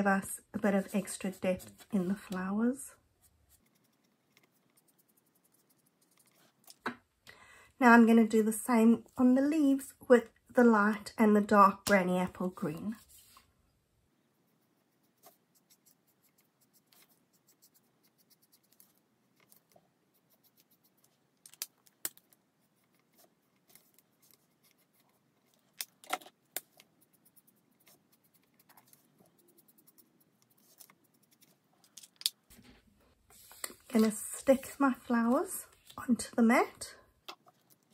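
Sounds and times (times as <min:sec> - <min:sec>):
marker scratching on cardstock: 0:00.6 - 0:02.4, 0:03.5 - 0:06.6, 0:14.5 - 0:21.1, 0:26.8 - 0:31.6.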